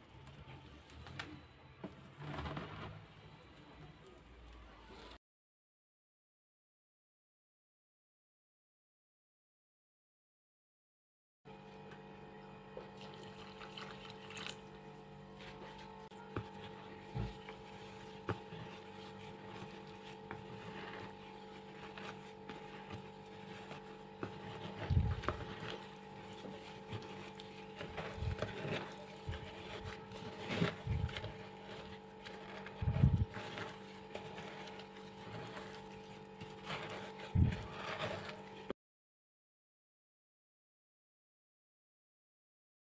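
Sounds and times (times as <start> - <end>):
dry clay crunching by hand: 15.3 - 38.7.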